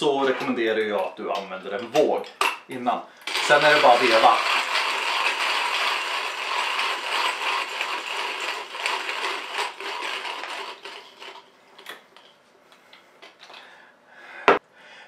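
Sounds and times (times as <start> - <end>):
hand coffee grinder grinding beans: 3.2 - 12.3.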